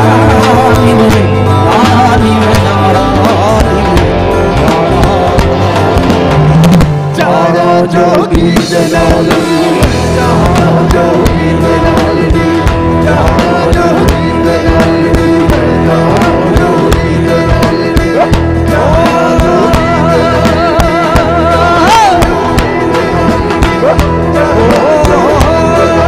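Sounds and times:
drum kit beat: 0.0s - 26.0s
electric guitar: 0.0s - 26.0s.

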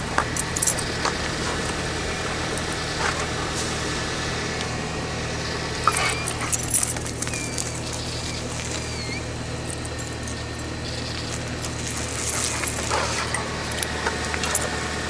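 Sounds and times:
scuffling on dry ground: 0.0s - 15.0s
steady low hum: 0.0s - 15.0s
dog whining: 5.8s - 9.4s.

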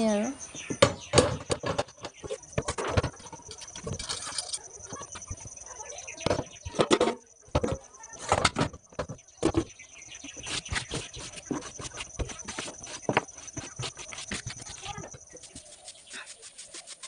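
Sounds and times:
steel utensils clinking: 3.5s - 4.7s.

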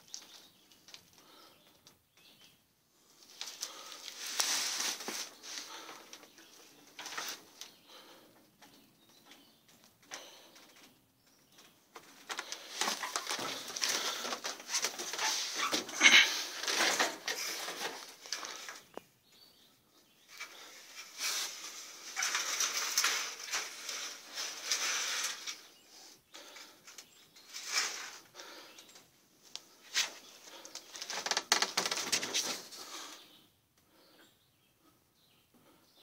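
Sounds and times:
rustling and scuffing: 3.4s - 6.0s.

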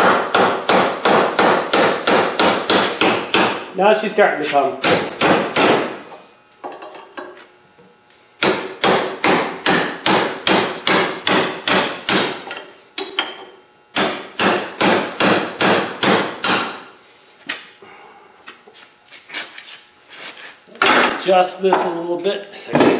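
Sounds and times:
hammer striking steel chisel: 8.4s - 13.4s.

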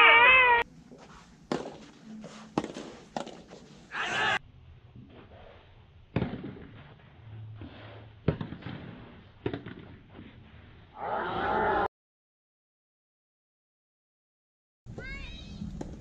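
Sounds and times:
tennis ball racket hits: 1.0s - 3.7s.

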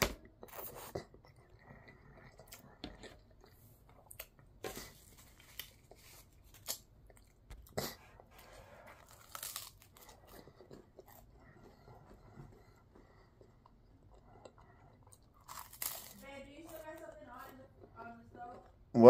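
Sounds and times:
soft chewing: 0.2s - 19.0s
crunchy biting: 3.9s - 16.8s.

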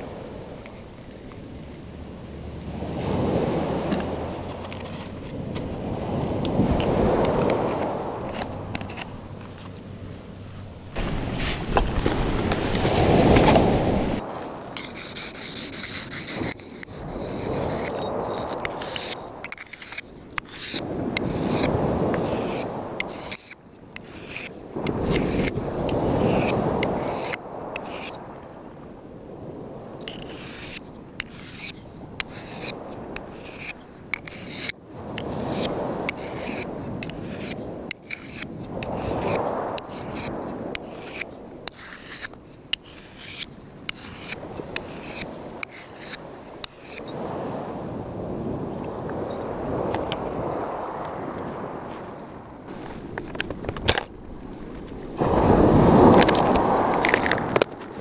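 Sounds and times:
surf washing: 0.0s - 58.0s
knife scraping on stone: 3.9s - 5.6s, 7.7s - 9.7s, 14.8s - 28.2s, 30.0s - 47.2s.

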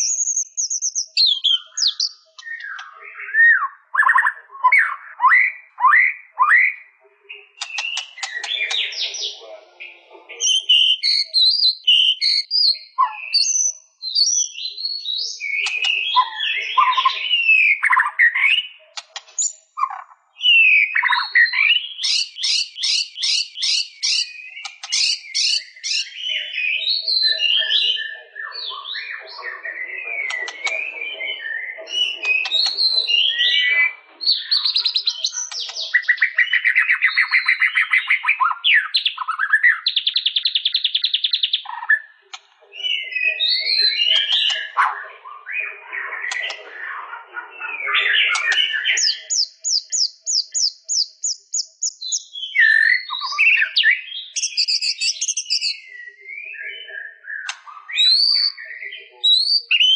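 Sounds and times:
bird singing whistled song: 0.0s - 9.4s, 10.4s - 46.7s, 47.7s - 59.9s.

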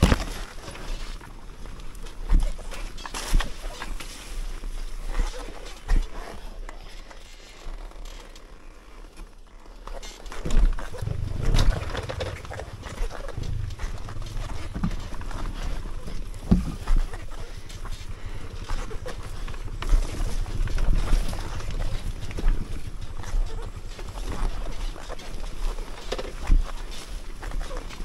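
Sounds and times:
motorcycle engine running: 10.0s - 28.0s.

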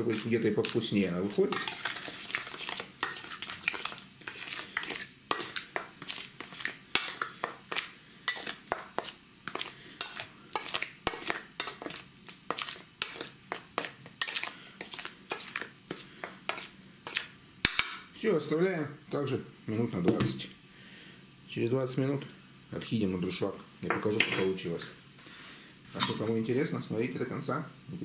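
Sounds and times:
fork scraping metal bowl: 0.0s - 17.3s.

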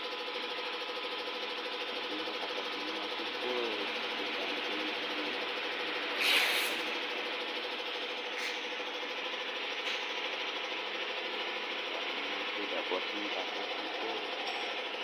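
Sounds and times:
heat gun fan blowing: 1.8s - 14.1s
short loud hiss: 6.2s - 6.8s.

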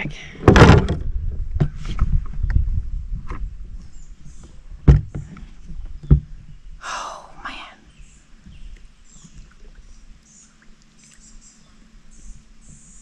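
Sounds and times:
loud thumps: 0.4s - 1.0s, 4.8s - 5.3s
knocks on plastic boat hull: 4.9s - 5.2s.

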